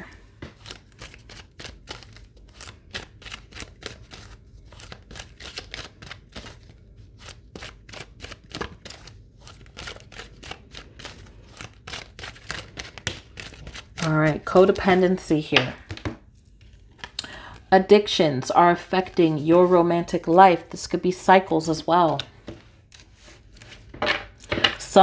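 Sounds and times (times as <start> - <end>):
cards being shuffled: 0.4 - 17.2, 22.0 - 24.6.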